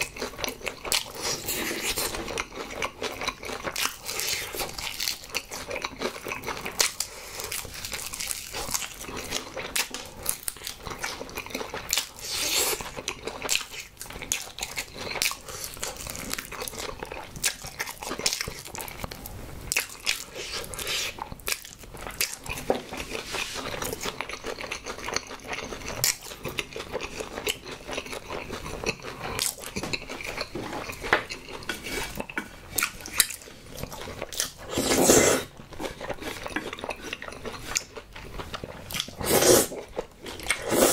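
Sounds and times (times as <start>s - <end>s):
biting and chewing: 0.0s - 40.9s
loud slurp of noodles: 34.7s - 35.5s, 39.2s - 39.8s, 40.6s - 40.9s.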